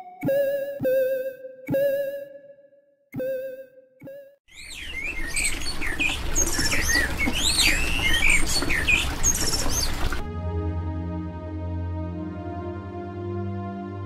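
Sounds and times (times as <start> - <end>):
ambient music tones: 0.0 - 4.2, 10.3 - 14.0
songbirds chirping: 4.5 - 10.2.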